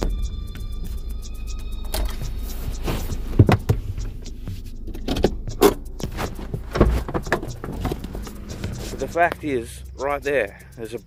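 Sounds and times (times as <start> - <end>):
background music: 0.0 - 11.0
phone handling knocks and clunks: 6.5 - 8.1.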